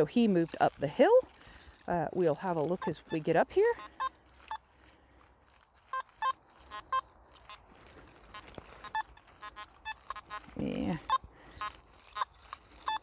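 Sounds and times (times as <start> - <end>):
metal detector beeping: 2.2 - 4.8, 5.8 - 13.0.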